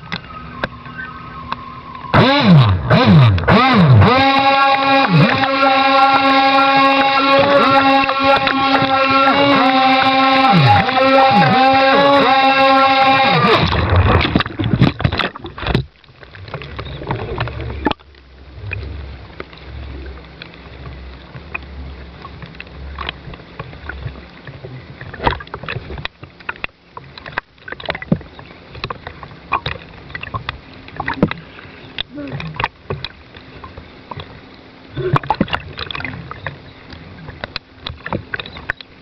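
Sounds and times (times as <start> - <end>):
low rumble: 12.5 - 24.9.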